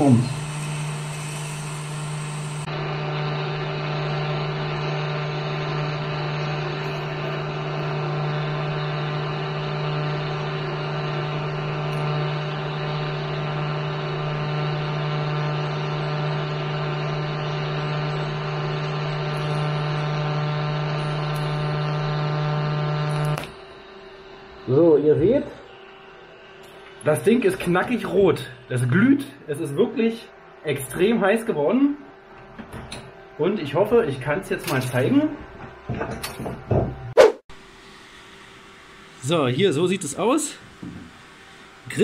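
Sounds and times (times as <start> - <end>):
welding arc buzzing: 0.0 - 24.6.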